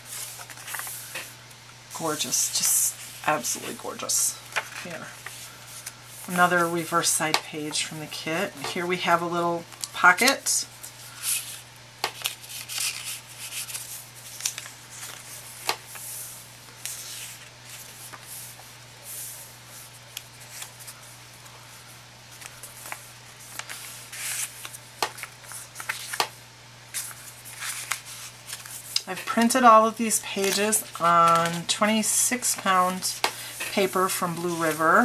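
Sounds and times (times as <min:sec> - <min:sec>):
paper and card rustling: 0:00.0 - 0:01.4, 0:02.0 - 0:21.2, 0:22.3 - 0:35.0.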